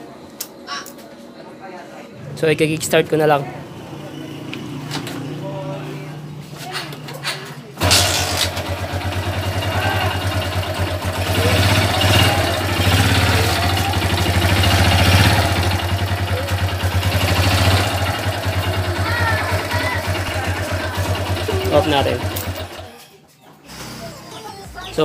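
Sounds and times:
motorcycle engine revving: 7.8 - 22.9.

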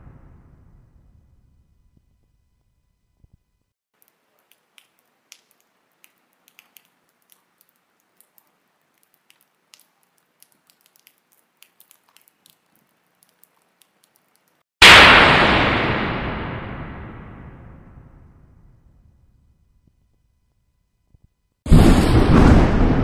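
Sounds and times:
light rain hiss: 4.0 - 14.6.

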